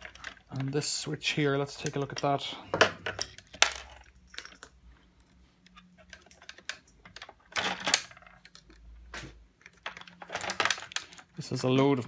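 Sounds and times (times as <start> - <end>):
pliers and wire connectors clicking: 1.6 - 4.8, 5.6 - 9.0.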